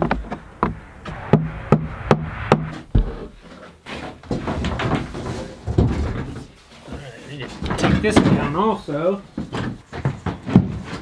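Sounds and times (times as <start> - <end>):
boards rustling and scraping: 2.8 - 8.6, 9.4 - 11.0.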